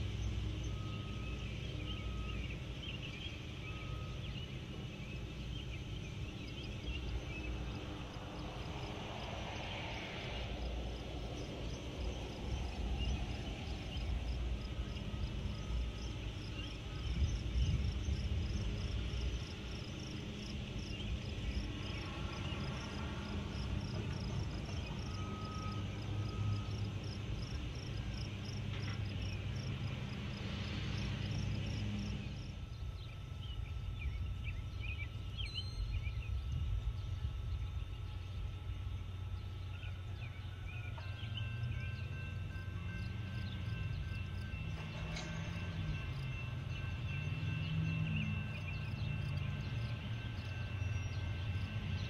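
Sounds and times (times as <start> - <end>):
distant freight train rumble: 0.0 - 52.0
birds chirping and trilling: 0.2 - 8.3, 32.7 - 37.8.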